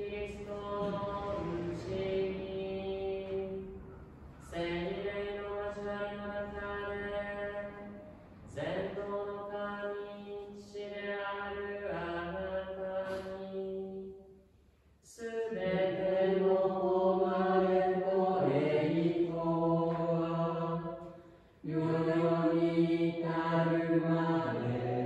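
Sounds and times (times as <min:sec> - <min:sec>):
voices singing a slow hymn: 0:00.0 - 0:14.4, 0:15.0 - 0:25.0.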